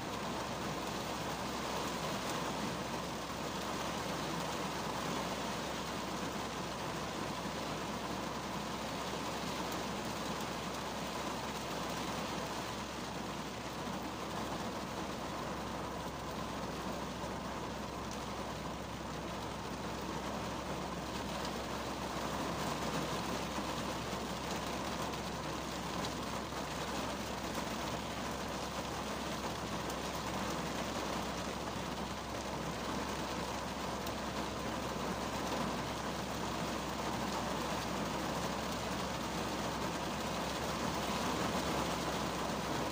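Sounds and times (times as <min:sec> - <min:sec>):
rain on car roof: 0:00.0 - 0:42.9.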